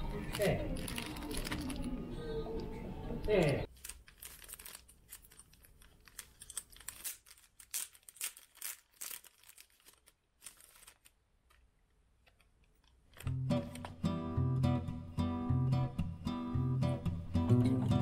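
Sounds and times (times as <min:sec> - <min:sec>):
plastic packaging crinkling: 0:00.0 - 0:02.3, 0:03.3 - 0:13.9.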